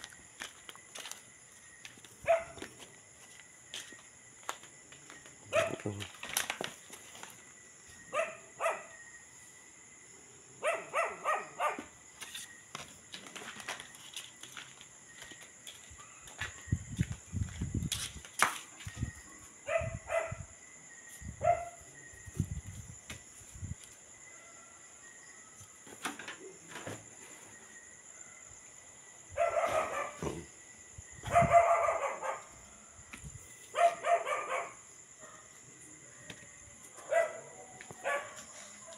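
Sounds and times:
dog barking: 2.2 - 2.6, 5.5 - 5.9, 8.1 - 9.0, 10.6 - 12.0, 19.7 - 20.5, 21.4 - 21.8, 29.4 - 30.4, 31.3 - 32.6, 33.8 - 36.3, 37.0 - 38.9.

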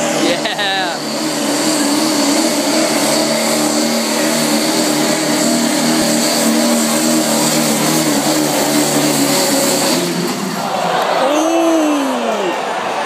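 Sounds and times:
diesel truck engine under load: 0.0 - 12.2.

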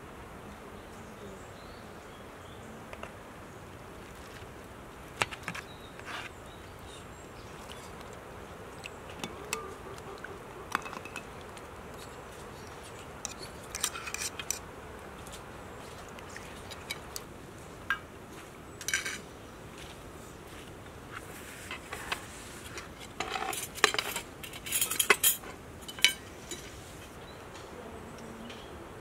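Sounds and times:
outdoor background hiss: 0.0 - 29.0
metal ladle clinking on bowls: 10.7 - 11.4, 23.2 - 26.7.

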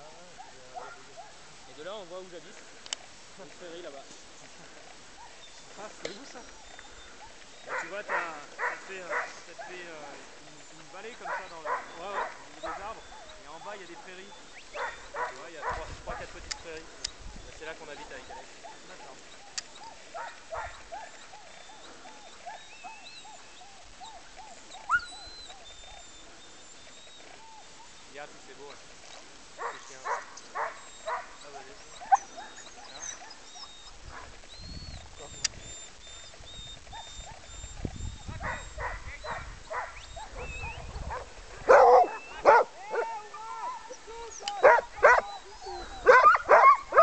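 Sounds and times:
dogs yipping: 0.1 - 1.9, 5.1 - 47.0
dog yelping: 7.0 - 10.1, 11.1 - 15.8, 17.9 - 28.1, 29.0 - 34.4, 35.7 - 47.0
dogs whining: 11.0 - 16.2, 17.9 - 28.3, 29.0 - 47.0.

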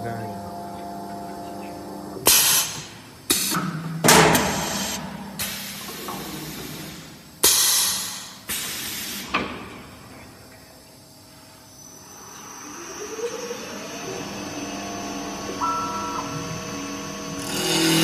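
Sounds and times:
pneumatic hiss: 2.2 - 9.8
machine clunks and bangs: 3.6 - 4.7.

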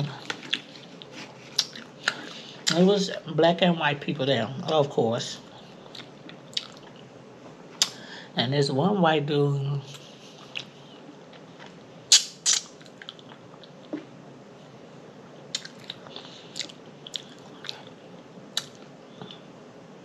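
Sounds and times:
person chewing: 0.1 - 2.8, 5.7 - 7.1, 9.9 - 14.2, 15.5 - 18.0, 18.6 - 19.5
lip smacks: 0.4 - 2.8, 5.9 - 7.0, 7.8 - 8.0, 9.9 - 10.8, 11.4 - 14.1, 15.5 - 17.9.

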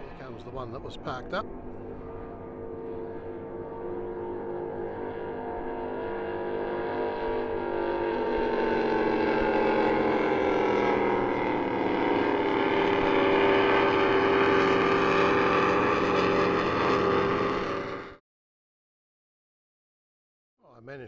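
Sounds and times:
powerboat engines running: 0.0 - 18.2.

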